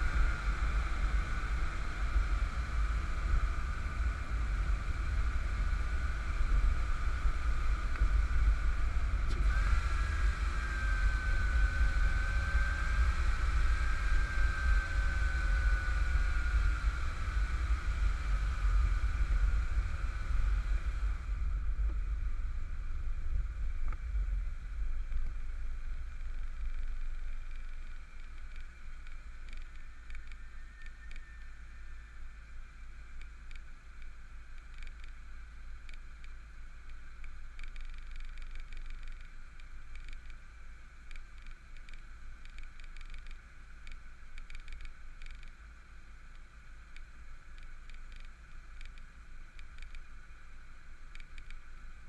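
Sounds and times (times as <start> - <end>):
road noise: 0.0 - 30.7
high whine wavering in pitch: 0.0 - 52.0
wind rumble on microphone: 0.0 - 52.0.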